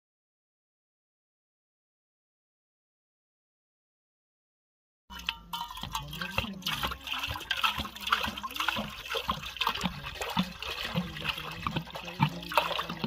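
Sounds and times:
water pouring into metal pot: 0:05.1 - 0:13.0.

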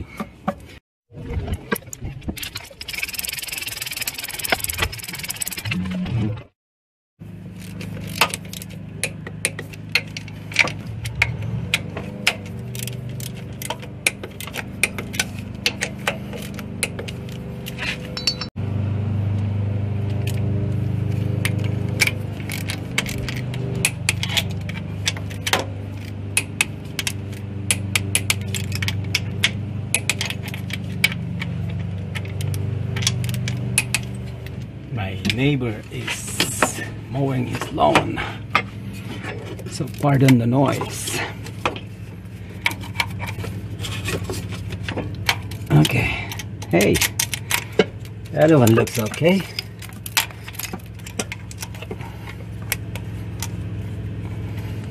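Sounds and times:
lawn mower engine humming: 0:01.8 - 0:06.5, 0:07.2 - 0:54.9
wrench and ratchet clinking on metal: 0:07.6 - 0:18.6, 0:21.5 - 0:34.6, 0:45.1 - 0:53.6.

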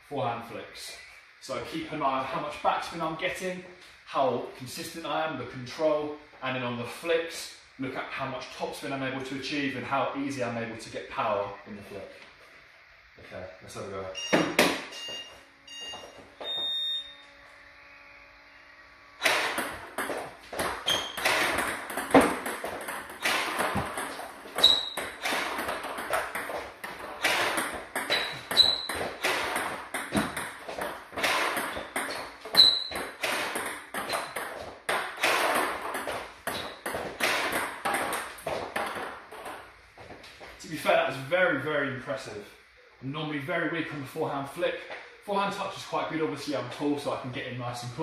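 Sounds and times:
table tennis ball bouncing on table: 0:19.2 - 0:39.7.

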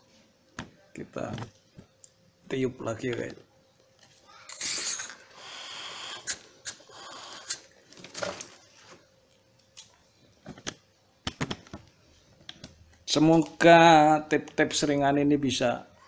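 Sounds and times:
air hissing through inflator hose: 0:04.5 - 0:07.7.

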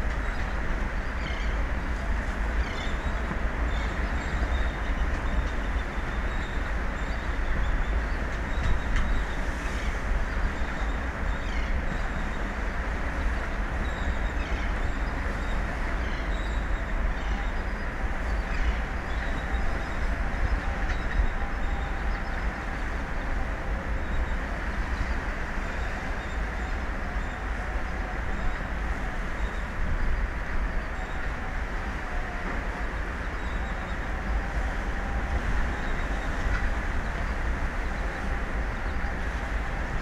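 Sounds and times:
sea noise: 0:00.0 - 0:40.0
wind buffeting microphone: 0:00.0 - 0:40.0.

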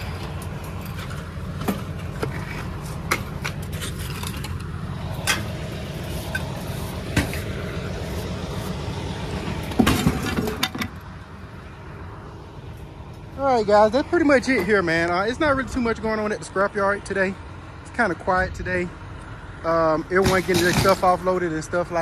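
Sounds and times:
tire rolling up metal ramp: 0:00.0 - 0:11.1
vehicle engine running: 0:00.0 - 0:22.0
knocks and rattles: 0:09.6 - 0:11.0.

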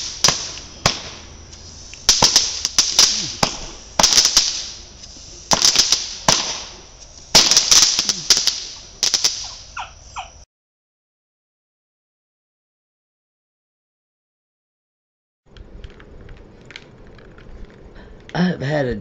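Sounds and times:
fireworks cracking and popping: 0:00.0 - 0:10.3, 0:15.5 - 0:18.4.

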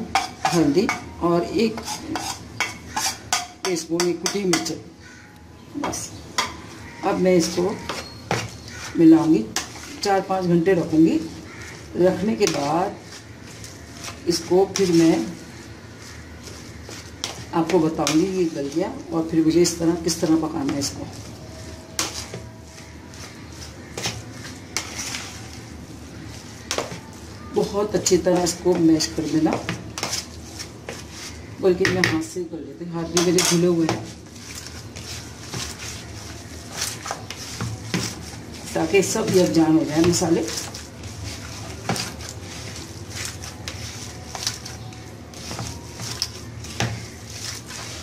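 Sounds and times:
hand squishing minced meat: 0:07.6 - 0:19.2, 0:20.2 - 0:31.6, 0:33.4 - 0:48.0
hands squeezing minced meat: 0:40.5 - 0:48.0.

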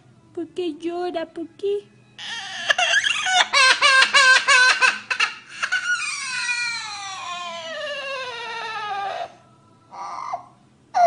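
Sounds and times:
parrot imitating child crying: 0:02.2 - 0:11.0.

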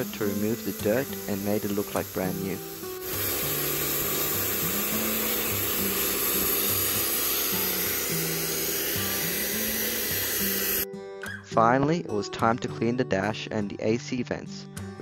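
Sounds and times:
pressure washer spraying water: 0:00.0 - 0:10.8
background music: 0:00.0 - 0:15.0.

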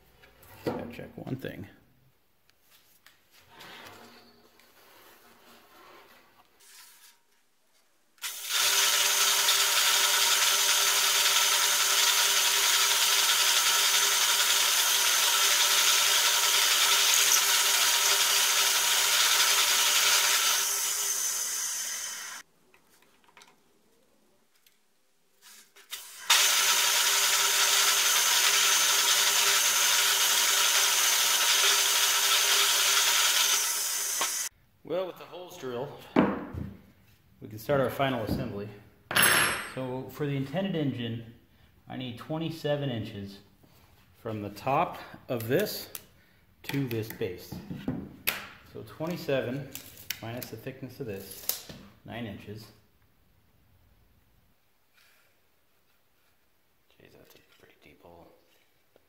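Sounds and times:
drill press boring into plywood: 0:08.2 - 0:22.4, 0:25.9 - 0:34.5.

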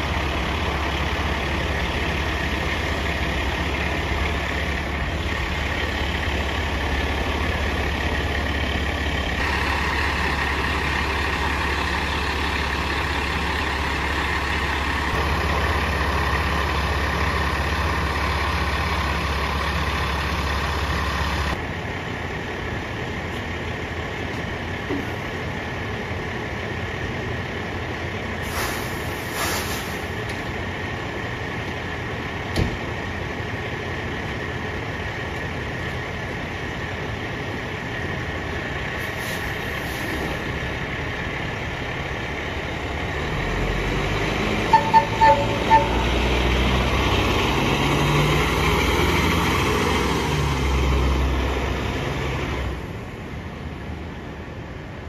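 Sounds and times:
diesel engine idling: 0:00.0 - 0:55.0
short high hisses: 0:28.4 - 0:30.0.

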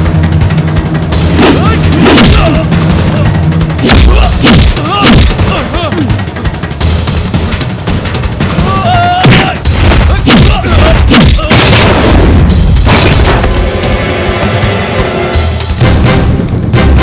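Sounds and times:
loud action music: 0:00.0 - 0:17.0
punch and kick impacts: 0:03.8 - 0:05.5, 0:09.2 - 0:13.6.

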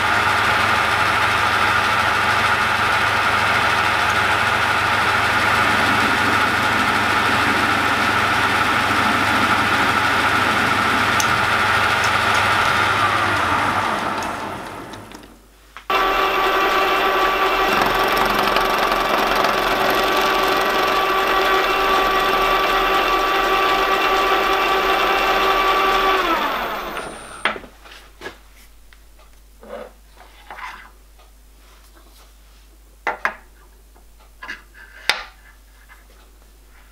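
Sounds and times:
milling machine spindle drilling metal: 0:00.0 - 0:27.6.

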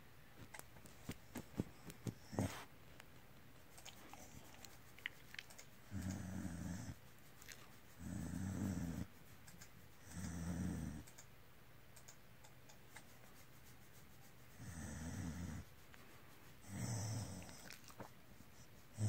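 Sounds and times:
dog's low purr-like rumble: 0:08.0 - 0:09.1.

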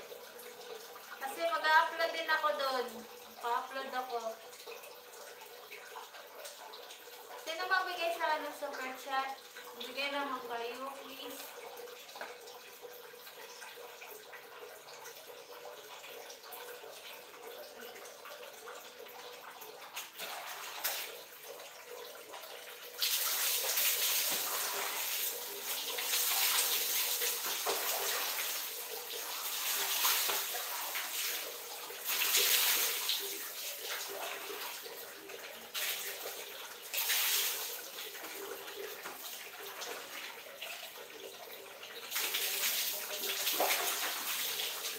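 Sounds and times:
water running in bathroom: 0:00.0 - 0:44.9
water splashing onto tiled floor: 0:19.1 - 0:44.9.

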